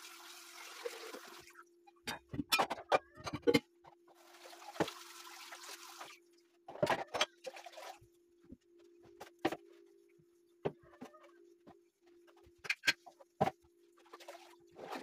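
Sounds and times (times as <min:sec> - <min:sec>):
tap water running: 0:00.0 - 0:01.5, 0:04.2 - 0:06.2
dishes clinking and knocking: 0:02.0 - 0:03.7.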